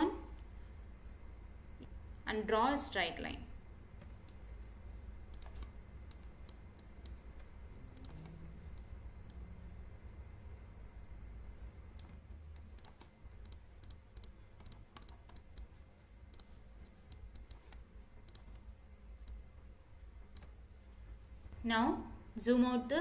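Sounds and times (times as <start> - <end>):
faint low hum: 0.0 - 23.0
computer mouse clicking: 4.0 - 4.4, 5.2 - 9.5, 11.9 - 19.5, 20.3 - 20.6.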